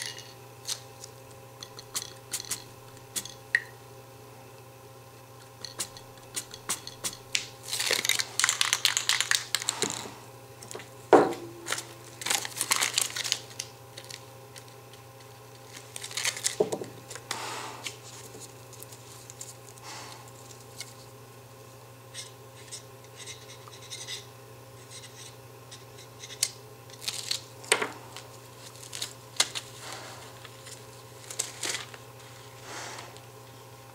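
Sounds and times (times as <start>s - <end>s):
steady low hum: 0.0s - 33.9s
paper crinkling and rustling: 7.3s - 10.9s, 11.6s - 17.2s, 17.8s - 21.1s, 26.9s - 33.2s.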